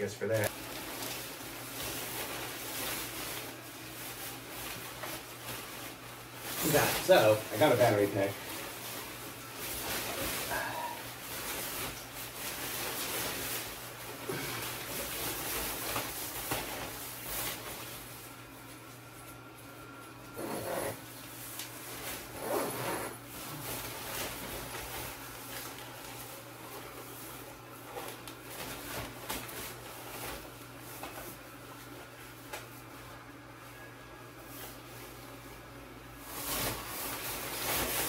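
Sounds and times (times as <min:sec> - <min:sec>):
blower fan humming: 0:00.0 - 0:38.0
costume fabric rustling: 0:00.2 - 0:19.4, 0:20.6 - 0:33.1, 0:36.2 - 0:38.0.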